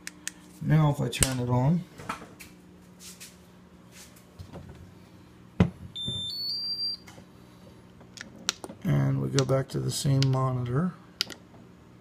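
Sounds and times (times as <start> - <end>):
rising startup beeps: 6.0 - 7.0.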